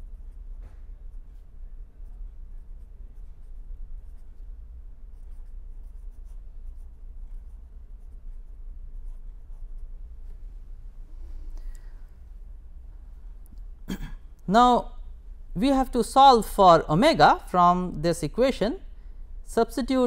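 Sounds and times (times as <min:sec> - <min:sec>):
steady low hum: 0:00.0 - 0:20.0
pen writing on paper: 0:05.1 - 0:10.0.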